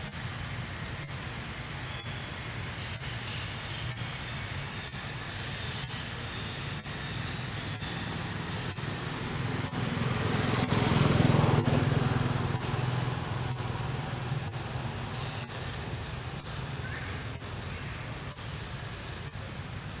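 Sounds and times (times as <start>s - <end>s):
road traffic engine hum: 0.0s - 20.0s
vehicle passing: 6.8s - 19.3s.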